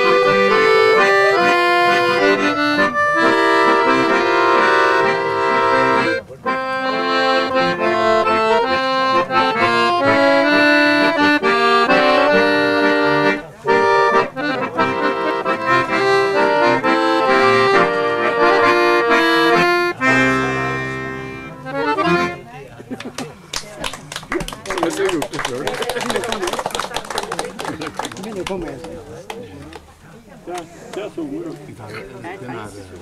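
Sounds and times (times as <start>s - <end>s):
button accordions playing: 0.0s - 22.5s.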